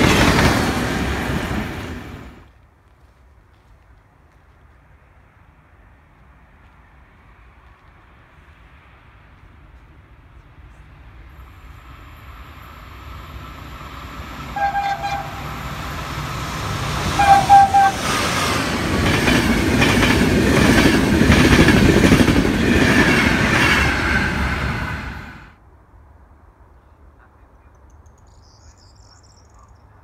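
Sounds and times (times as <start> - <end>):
train wheels rumbling: 0.0 - 2.5, 9.3 - 25.6
train horn blasts: 14.3 - 15.9, 17.0 - 18.2.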